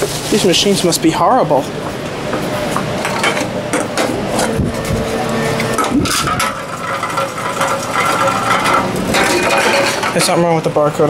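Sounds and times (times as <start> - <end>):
vending machine motor hum: 0.0 - 11.0
containers knocking and rattling: 5.6 - 10.5.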